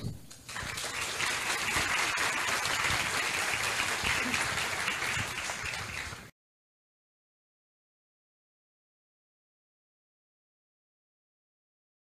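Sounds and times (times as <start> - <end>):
audience applauding: 0.4 - 6.3.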